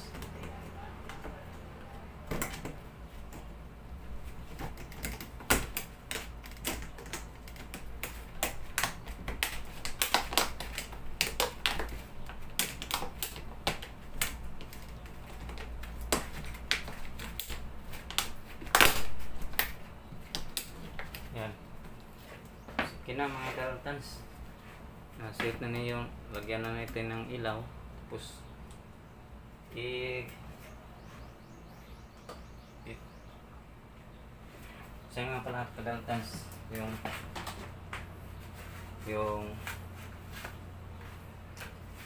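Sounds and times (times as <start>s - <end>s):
steady low hum: 0.0s - 42.0s
clicks and taps of wiring work: 4.5s - 22.0s, 25.3s - 27.0s.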